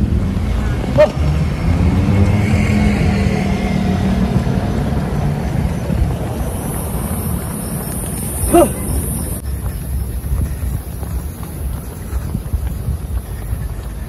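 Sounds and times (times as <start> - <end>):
car driving past: 0.0 - 9.2.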